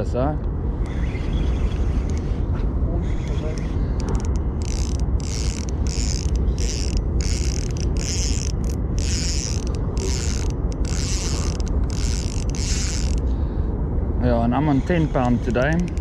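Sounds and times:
low rumble: 0.0s - 16.0s
fishing reel whirring: 0.8s - 13.3s, 14.8s - 16.0s.

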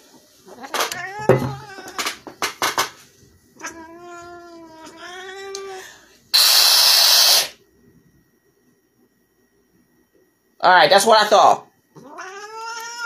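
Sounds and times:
cat crying: 0.6s - 2.0s, 3.6s - 7.5s, 12.0s - 13.0s
cat yowling: 3.6s - 7.5s, 12.0s - 13.0s
cat hissing: 3.6s - 7.6s, 12.0s - 13.0s.

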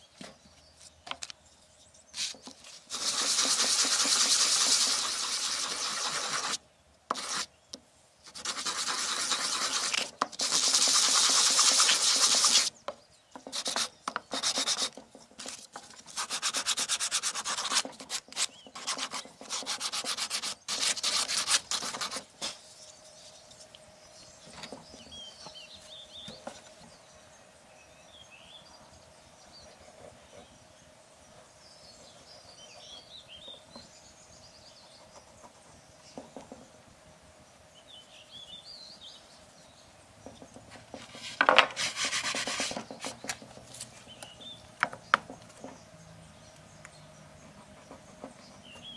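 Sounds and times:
sandpaper sanding wood: 2.2s - 7.5s, 8.3s - 12.7s, 13.5s - 22.6s, 41.0s - 43.3s
bird chirps: 22.4s - 36.7s, 44.0s - 48.9s.

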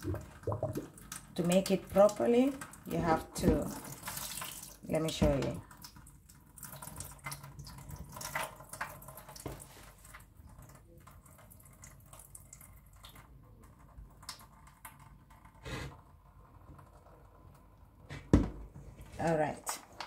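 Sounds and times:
small splashes and taps: 0.0s - 15.4s
water trickling into sink: 0.0s - 18.0s.

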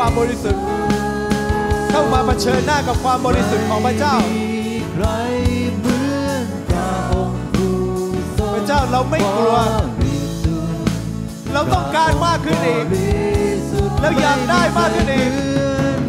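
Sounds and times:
held chords and low notes: 0.0s - 16.0s
person singing: 0.0s - 16.0s
drum hits: 1.5s - 5.6s.

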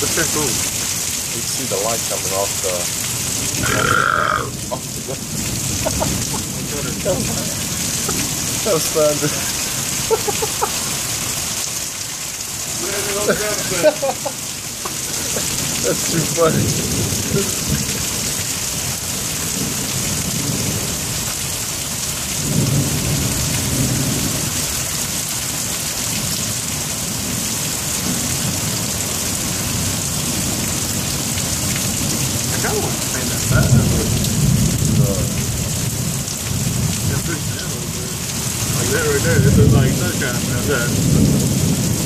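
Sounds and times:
heavy rain hissing: 0.0s - 42.0s
low rolls of thunder: 38.9s - 42.0s.

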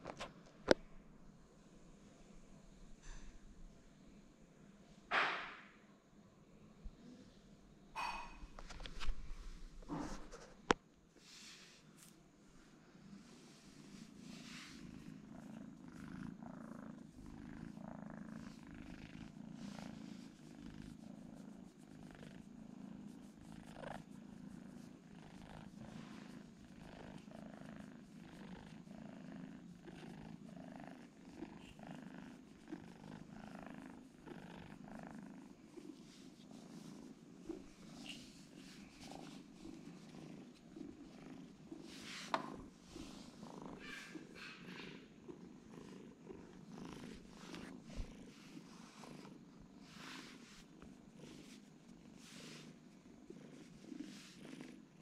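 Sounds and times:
kitten purring: 13.0s - 55.0s.

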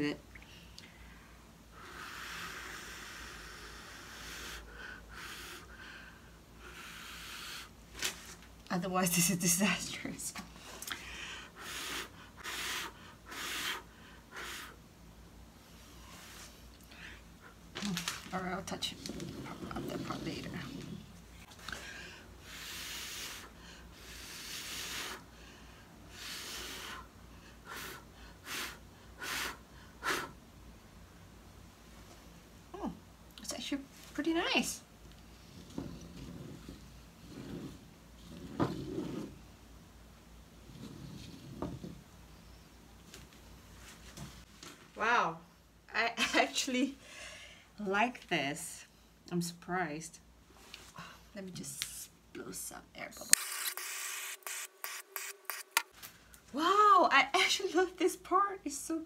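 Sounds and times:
person blowing air through lips: 1.8s - 5.8s, 11.5s - 14.8s, 22.4s - 25.3s, 26.1s - 30.4s.

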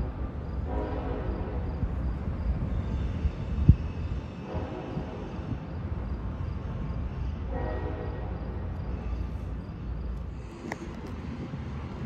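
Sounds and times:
distant train horn: 0.6s - 1.7s, 4.4s - 5.3s, 7.4s - 8.7s.

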